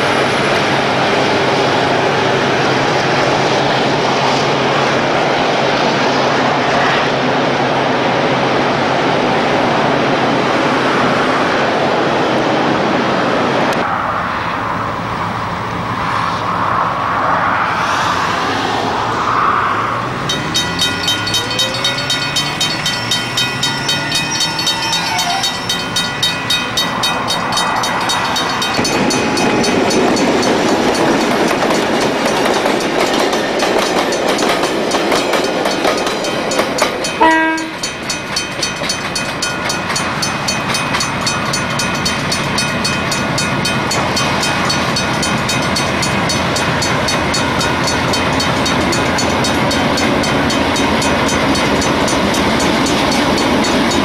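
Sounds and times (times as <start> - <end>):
diesel locomotive engines: 0.0 - 54.0
steady high tone: 17.7 - 33.0
wheels clicking over rail joints: 20.2 - 54.0.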